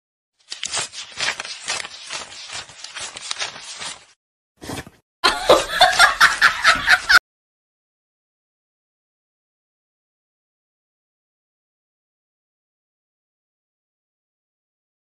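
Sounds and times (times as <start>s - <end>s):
snickering laughter: 5.2s - 7.2s.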